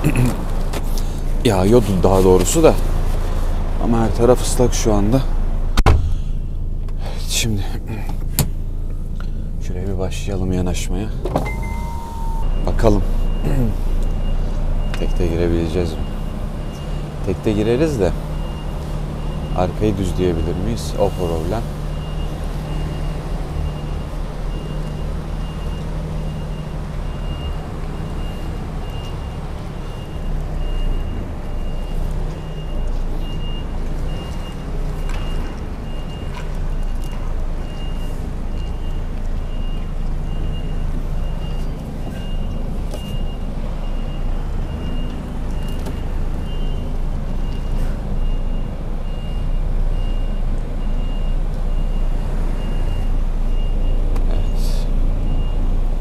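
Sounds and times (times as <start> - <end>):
diesel engine running: 0.0 - 56.0
reversing alarm beeps: 11.4 - 17.2, 17.8 - 55.8.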